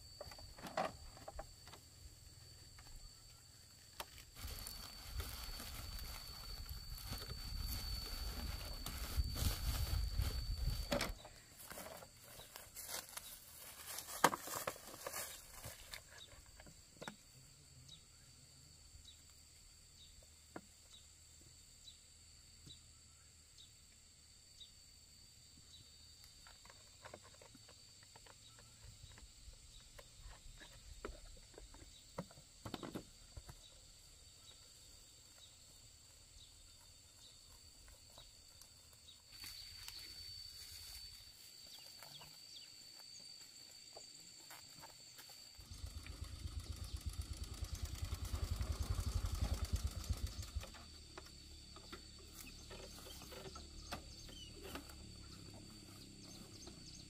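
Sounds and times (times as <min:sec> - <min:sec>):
rustling dry leaves: 0:04.1 - 0:10.9, 0:11.6 - 0:16.0.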